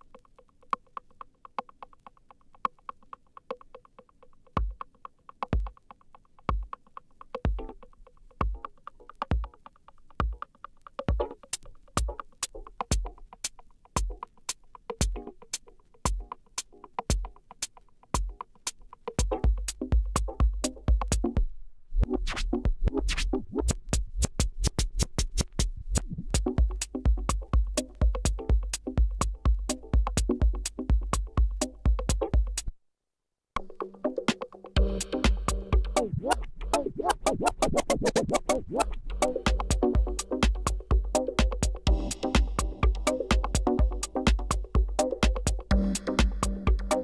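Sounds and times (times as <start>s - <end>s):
electronic dance music beat: 19.2s - 21.4s, 26.4s - 32.7s, 33.9s - 47.0s
record scratching: 22.0s - 26.6s, 36.0s - 40.4s.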